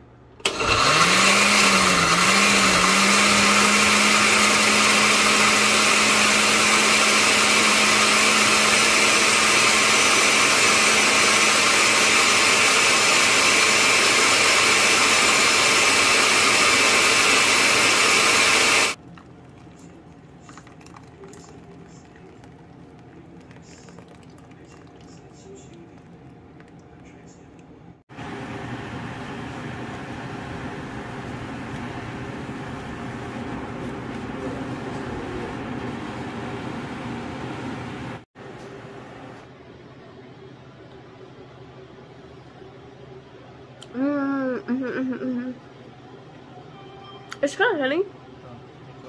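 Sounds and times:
blender blending vegetables: 0.4 - 19.0.

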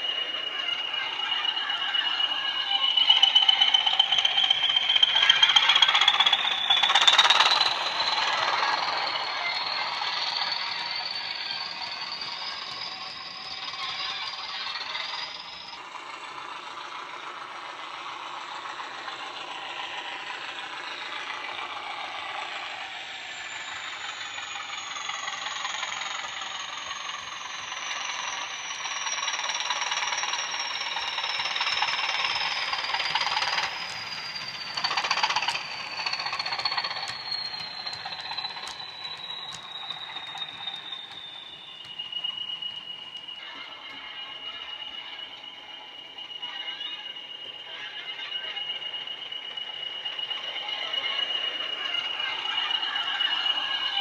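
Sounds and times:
high falling whistle: 0.0 - 54.0
recorded diesel engine sound: 0.0 - 54.0
model wagon wheels rattling: 2.6 - 16.6, 23.4 - 44.5.

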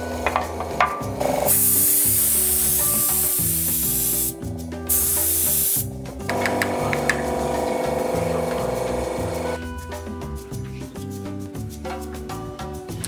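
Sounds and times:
spray gun hissing: 1.5 - 5.9, 7.4 - 9.6.

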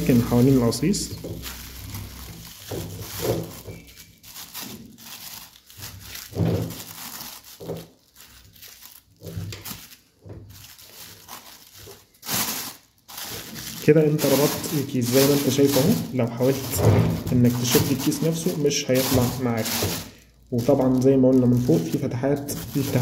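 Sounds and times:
plastic bag crinkling: 0.0 - 23.0.

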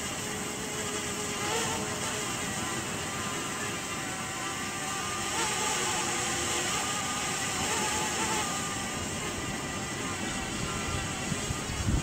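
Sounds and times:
drone propeller whine: 0.0 - 12.0
steady rushing noise: 6.6 - 12.0.

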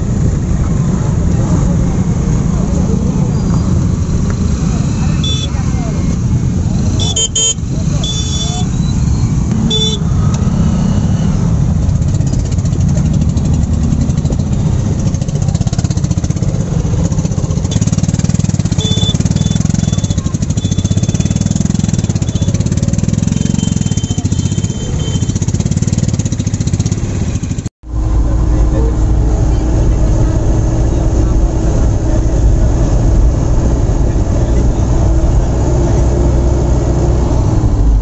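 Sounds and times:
short high horn beeps: 5.2 - 5.6, 7.0 - 10.1, 18.8 - 22.7, 23.3 - 25.4
motorcycle engines idling: 11.5 - 32.2.

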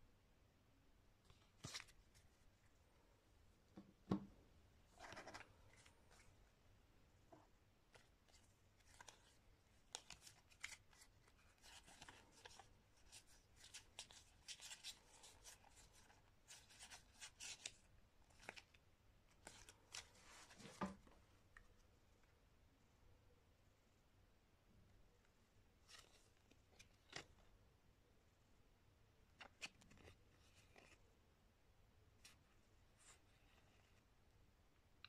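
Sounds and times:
playing cards rustling: 1.3 - 2.3, 5.0 - 6.3, 7.9 - 18.7, 19.3 - 21.1.

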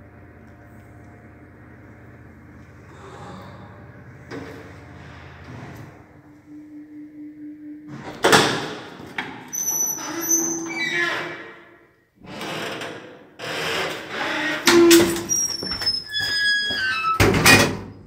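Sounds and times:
lift doors clanking and knocking: 12.4 - 18.0.

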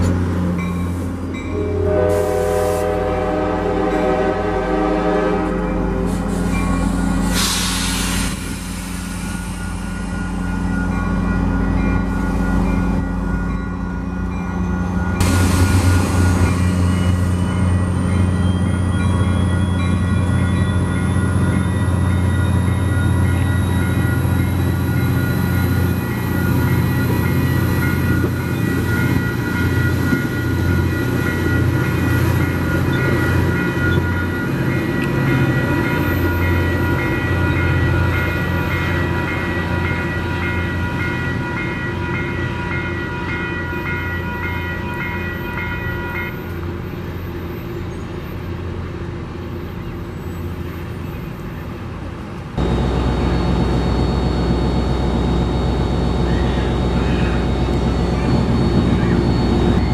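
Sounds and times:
diesel train engine drone: 0.0 - 59.9
high whine: 52.6 - 59.9.

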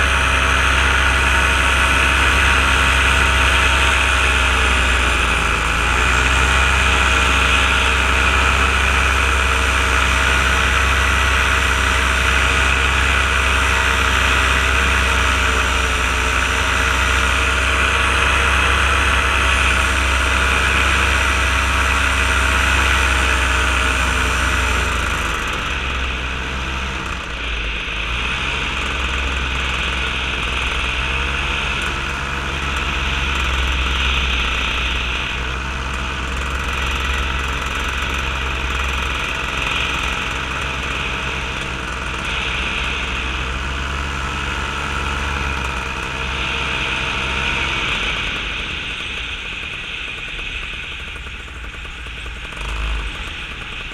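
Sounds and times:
paramotor engine and propeller: 0.0 - 53.9.

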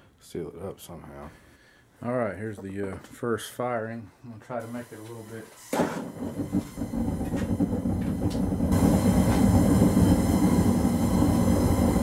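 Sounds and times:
gas burner roaring: 4.6 - 12.0.

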